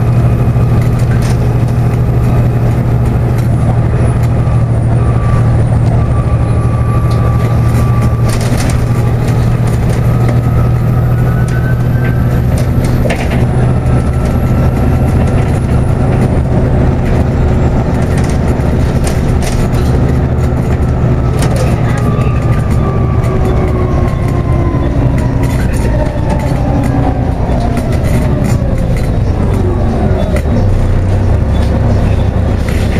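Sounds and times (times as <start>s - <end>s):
diesel bus engine drone: 0.0s - 32.9s
transmission whine: 0.0s - 32.9s
bodywork rattles and knocks: 6.9s - 29.6s.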